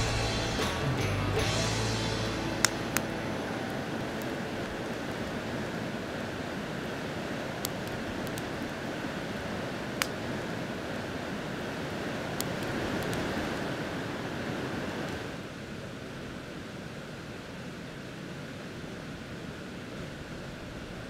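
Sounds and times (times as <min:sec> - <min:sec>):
steady rushing noise: 0:00.0 - 0:15.6
campfire pops and crackles: 0:07.5 - 0:08.9, 0:09.8 - 0:10.4, 0:12.3 - 0:13.6.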